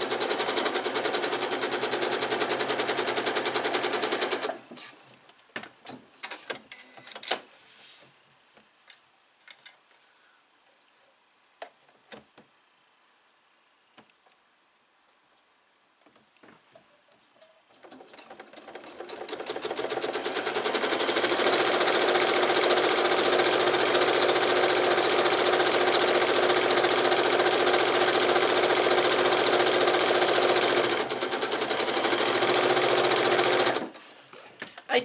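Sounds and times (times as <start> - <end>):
electric sewing machine stitching: 0.0 - 4.6, 17.9 - 34.0.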